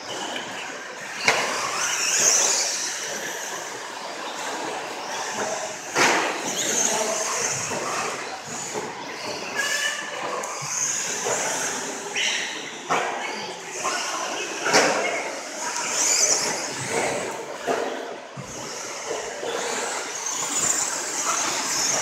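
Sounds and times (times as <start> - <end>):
rc truck motors whirring: 13.4 - 22.0.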